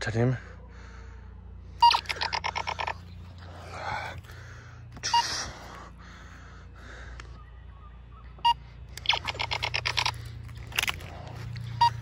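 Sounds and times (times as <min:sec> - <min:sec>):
toy blaster short beep: 0:01.8 - 0:02.6
soft breathing: 0:03.3 - 0:07.4.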